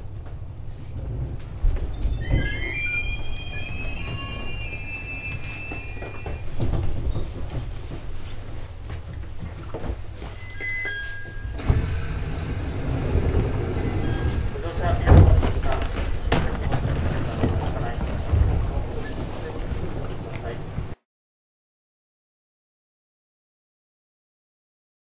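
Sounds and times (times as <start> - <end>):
high whine of several tones: 2.2 - 6.5
electric train rumble: 11.5 - 21.0.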